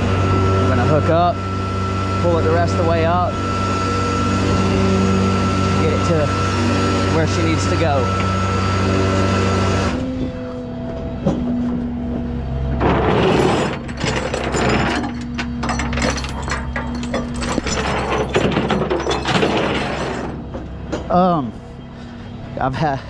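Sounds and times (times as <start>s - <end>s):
metal chain clanking and rattling: 12.8s - 21.2s.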